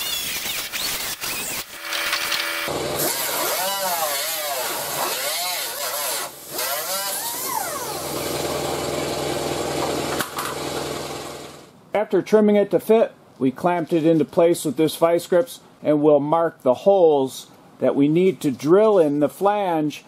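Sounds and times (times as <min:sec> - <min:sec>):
die grinder cutting fiberglass: 0:00.0 - 0:11.6.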